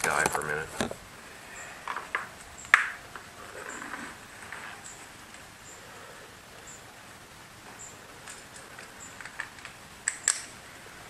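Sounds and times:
faint high chirps: 0:01.2 - 0:09.9.

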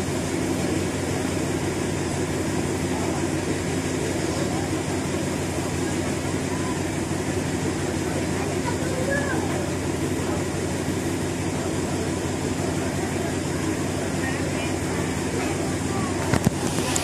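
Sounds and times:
diesel train engine idling: 0:00.0 - 0:17.0.

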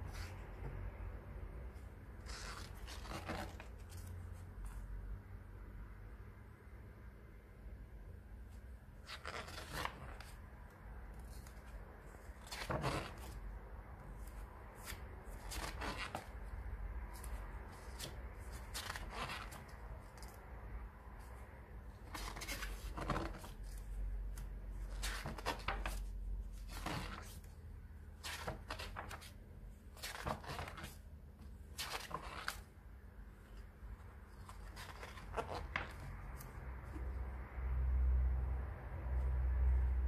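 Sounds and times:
pages turning: 0:01.8 - 0:04.8, 0:09.0 - 0:10.4, 0:11.0 - 0:13.4, 0:14.0 - 0:16.4, 0:17.1 - 0:20.4, 0:21.9 - 0:32.8, 0:33.5 - 0:37.2.

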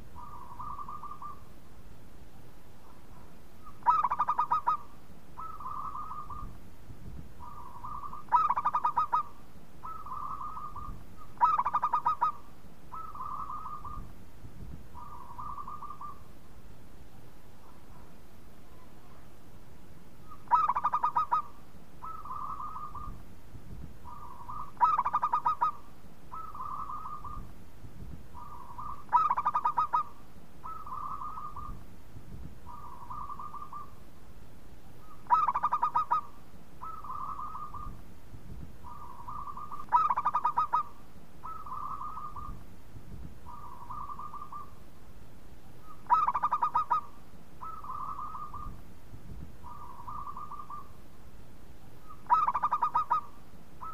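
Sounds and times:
dove cooing: 0:00.0 - 0:01.5, 0:02.8 - 0:06.6, 0:07.4 - 0:14.1, 0:15.0 - 0:16.3, 0:20.2 - 0:23.2, 0:24.0 - 0:27.5, 0:28.3 - 0:31.8, 0:32.6 - 0:34.0, 0:35.0 - 0:38.0, 0:38.8 - 0:42.6, 0:43.4 - 0:44.8, 0:45.8 - 0:48.8, 0:49.6 - 0:51.0, 0:52.0 - 0:53.9.

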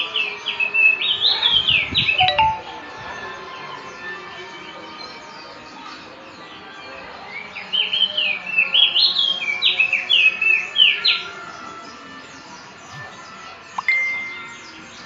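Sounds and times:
songbird singing chirping notes: 0:00.0 - 0:03.9, 0:07.5 - 0:15.0.

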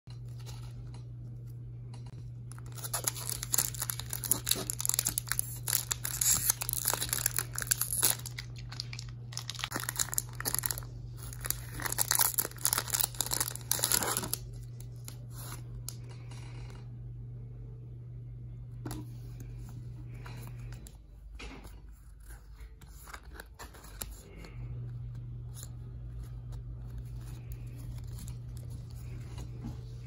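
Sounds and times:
foil wrapper crinkling and tearing: 0:02.5 - 0:15.6, 0:26.6 - 0:29.2.

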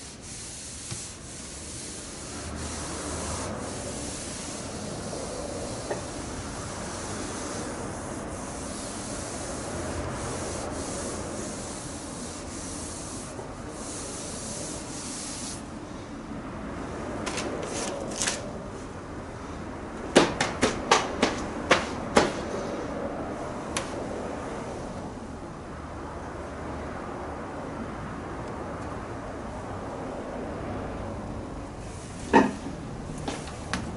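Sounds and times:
sandpaper scraping on metal: 0:00.0 - 0:15.6.

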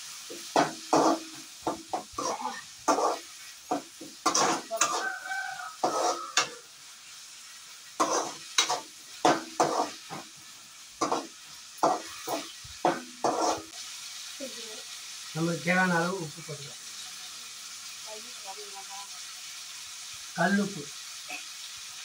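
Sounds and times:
vegetables sizzling in oil: 0:00.0 - 0:22.0
metal spoon scraping a pan: 0:00.3 - 0:06.6, 0:07.9 - 0:10.3, 0:11.0 - 0:13.8.

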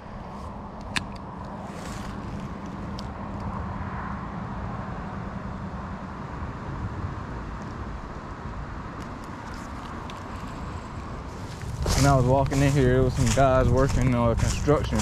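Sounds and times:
wind buffeting microphone: 0:07.8 - 0:15.0.

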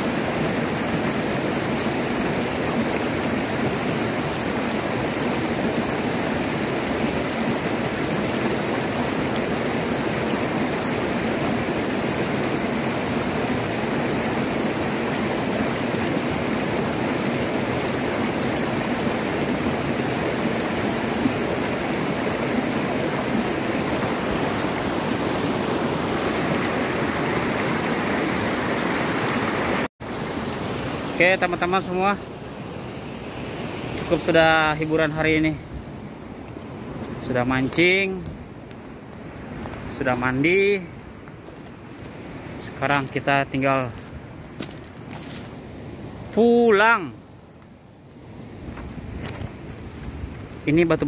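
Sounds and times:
river rapids rushing over rocks: 0:00.0 - 0:32.2.

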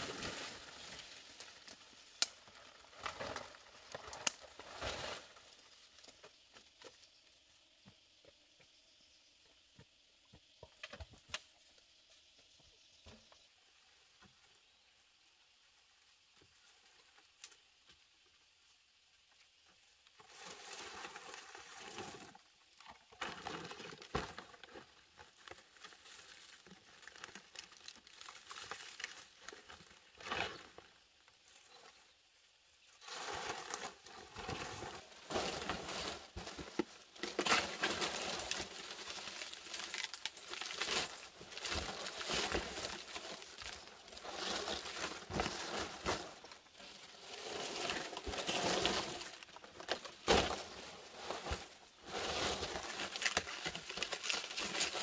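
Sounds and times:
palm leaves rustling and crackling: 0:00.0 - 0:07.2, 0:20.1 - 0:32.1, 0:32.8 - 0:55.0.

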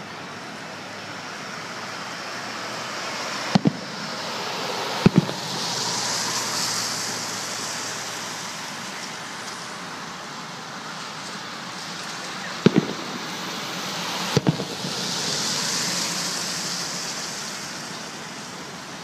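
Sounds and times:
road noise hiss: 0:00.0 - 0:19.0
car passing by: 0:01.0 - 0:19.0
firework shells bursting: 0:03.5 - 0:04.2, 0:04.9 - 0:07.2, 0:11.0 - 0:17.2.

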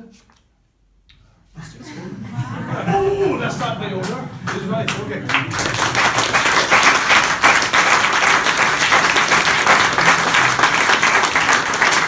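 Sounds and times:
people applauding: 0:02.7 - 0:12.0.

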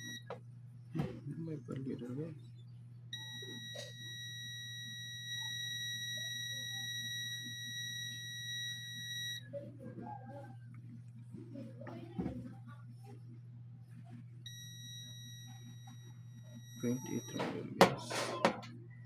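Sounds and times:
multimeter continuity beep: 0:00.0 - 0:00.4, 0:03.1 - 0:09.5, 0:14.5 - 0:17.9
steady low hum: 0:00.0 - 0:19.0.

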